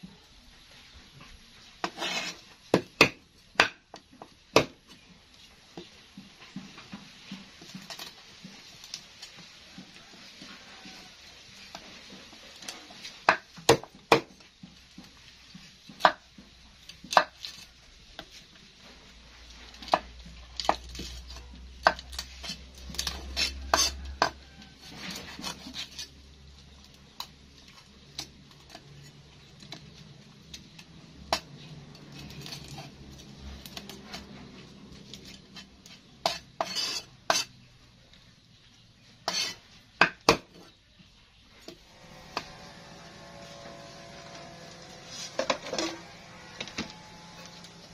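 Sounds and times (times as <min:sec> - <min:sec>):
knife scraping on wood: 0:01.8 - 0:02.6, 0:19.8 - 0:26.2, 0:31.3 - 0:37.6, 0:39.2 - 0:39.7, 0:41.7 - 0:47.9.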